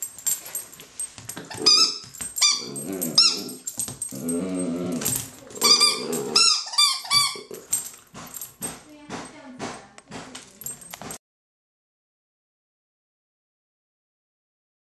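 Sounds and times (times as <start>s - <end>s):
puppy growling: 1.4s - 7.9s
rubber squeaky toy squeaking: 1.5s - 3.6s, 5.6s - 7.7s.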